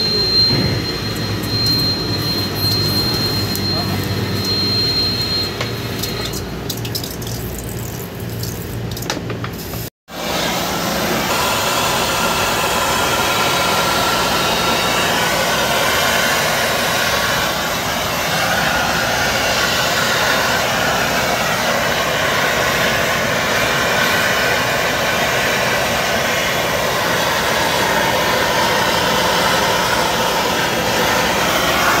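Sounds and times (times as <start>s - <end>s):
gas torch hissing: 9.7s - 32.0s.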